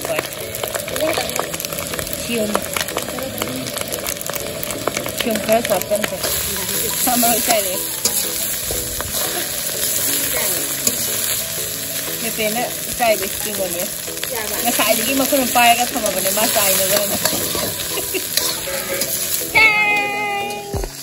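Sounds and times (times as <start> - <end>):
rice sizzling in a wok: 0.0 - 21.0
metal ladle scraping a pan: 14.6 - 19.5.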